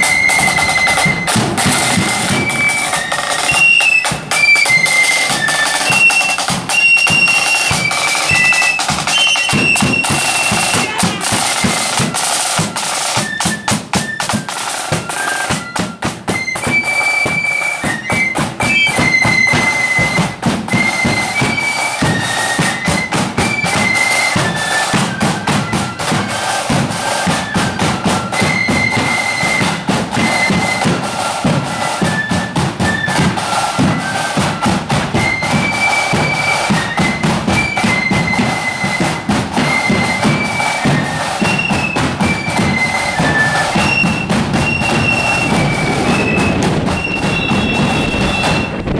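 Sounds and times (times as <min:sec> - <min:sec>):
flutes playing a melody: 0:00.0 - 0:48.9
side drums: 0:00.0 - 0:48.9
bass drum beating time: 0:42.8 - 0:48.9.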